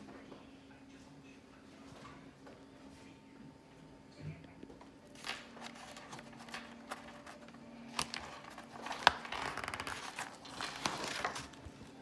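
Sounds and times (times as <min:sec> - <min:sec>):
paper rustling: 0:05.1 - 0:12.0.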